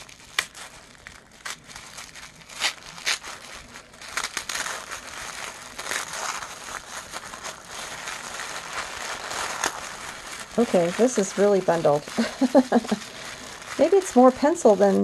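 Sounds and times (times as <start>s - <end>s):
tissue paper crinkling: 0.0s - 15.0s.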